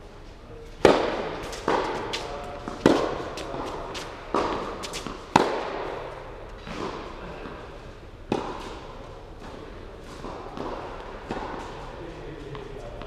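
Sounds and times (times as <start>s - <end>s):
tennis ball bouncing: 0.8s - 7.0s, 8.3s - 8.8s
tennis racket hitting ball: 0.8s - 7.1s, 8.3s - 8.8s.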